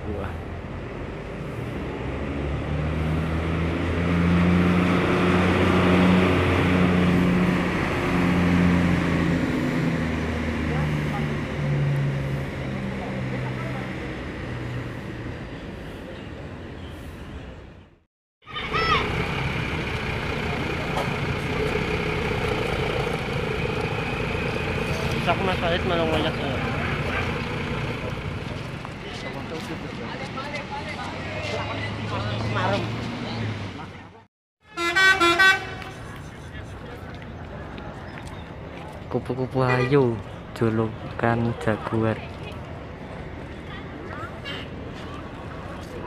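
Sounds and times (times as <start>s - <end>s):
bus diesel engine driving past: 0.0s - 46.0s
bus diesel engine running: 18.5s - 37.7s.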